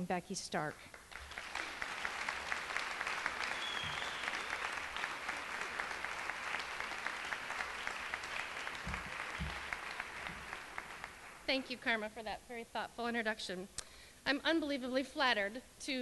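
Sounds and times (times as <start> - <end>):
audience applauding: 0.9 - 11.8.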